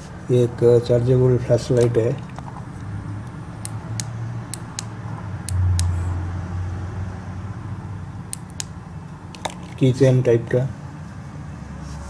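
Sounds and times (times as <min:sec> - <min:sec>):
flashlight switch clicks: 0:03.6 - 0:04.9.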